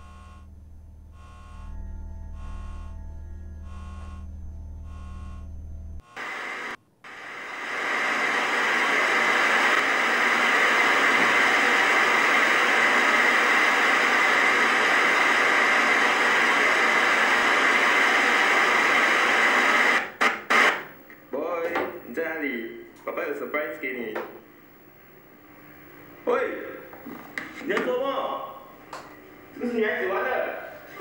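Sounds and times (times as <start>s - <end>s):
low pulsing electrical hum: 0.0s - 6.2s
static hiss: 6.0s - 21.0s.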